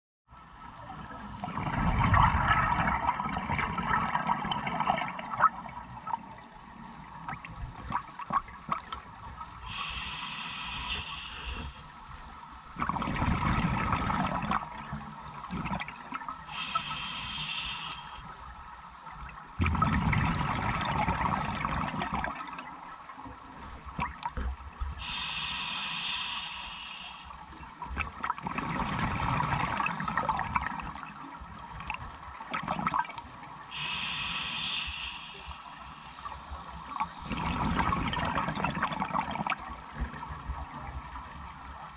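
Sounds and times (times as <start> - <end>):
exhaled bubbles gurgling: 1.4 - 6.4, 12.7 - 18.2, 19.5 - 22.9, 25.0 - 41.2
regulator inhale hiss: 9.6 - 12.0, 16.5 - 18.6, 24.9 - 27.6, 33.5 - 37.6.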